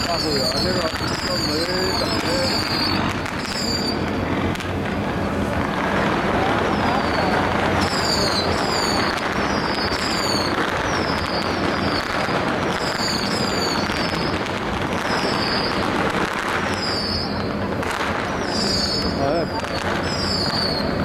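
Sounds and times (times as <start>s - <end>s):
high falling whistle: 0.0s - 4.1s, 6.4s - 14.4s, 15.1s - 15.9s, 16.6s - 17.5s, 18.3s - 21.0s
firecrackers crackling: 0.0s - 21.0s.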